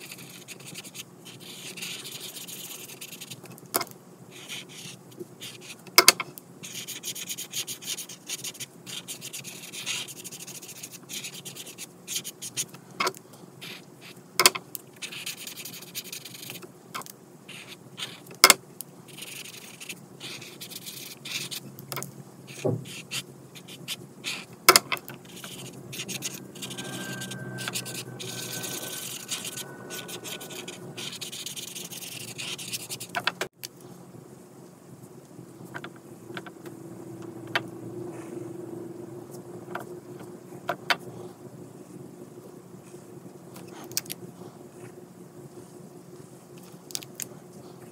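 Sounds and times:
marker scratching on paper: 0.0s - 3.4s, 4.3s - 5.8s, 6.6s - 12.6s, 15.0s - 16.6s, 19.1s - 21.6s, 22.5s - 24.5s, 25.2s - 26.7s, 27.7s - 33.2s.

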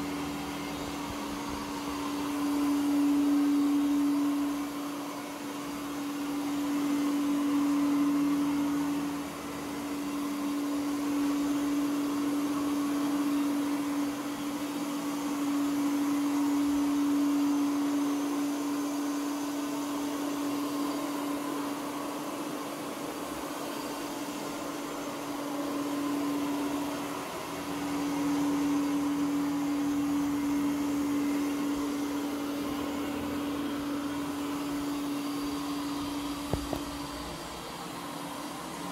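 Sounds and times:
robot vacuum humming: 0.0s - 38.9s.

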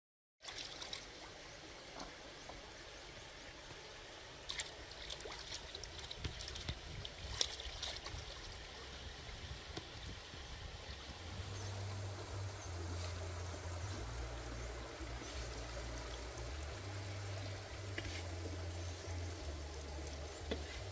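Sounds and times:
stream rushing over rocks: 0.4s - 20.9s
low hum: 10.7s - 20.9s.

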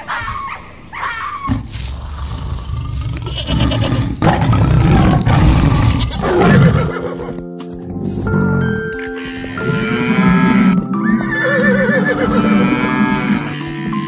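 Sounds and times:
tiger growling and roaring: 1.5s - 7.3s.

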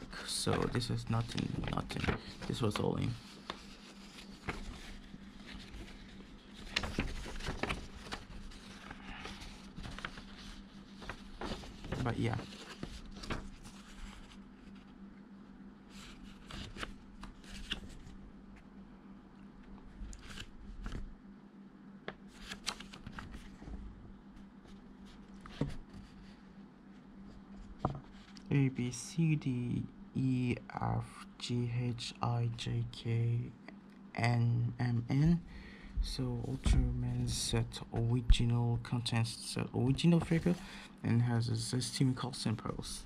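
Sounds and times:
paper leaflet rustling: 0.0s - 15.0s, 15.9s - 18.2s, 19.8s - 21.1s, 22.2s - 24.0s, 27.3s - 28.5s, 39.8s - 40.8s
faint steady hum: 0.0s - 43.0s.

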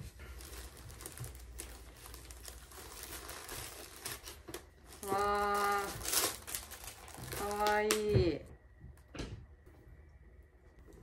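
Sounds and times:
fabric bag rustling and crinkling: 0.0s - 8.0s.

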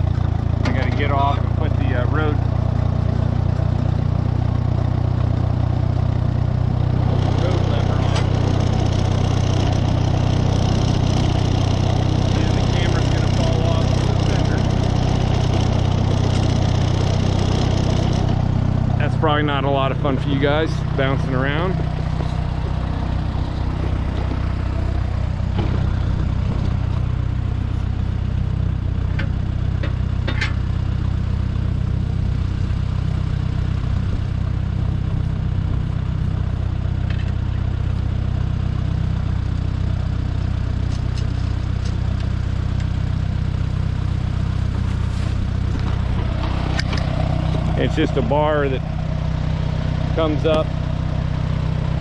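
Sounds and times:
tractor engine idling: 0.0s - 52.0s.

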